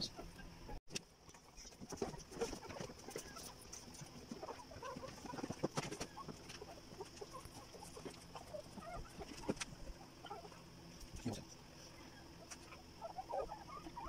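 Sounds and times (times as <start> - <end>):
puppies squeaking: 0.0 - 0.8, 1.5 - 11.1, 11.8 - 14.0.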